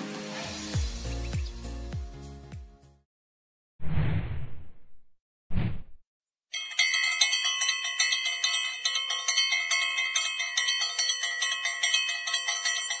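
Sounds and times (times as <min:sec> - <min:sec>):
bell-like ringing: 0:06.5 - 0:13.0.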